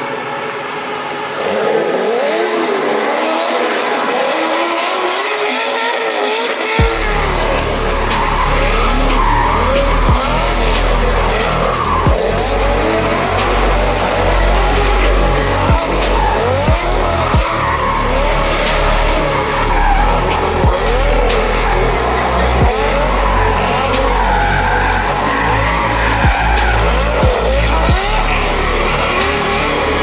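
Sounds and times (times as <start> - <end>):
tyres squealing: 5.2 - 30.0
music with heavy bass beat: 6.8 - 30.0.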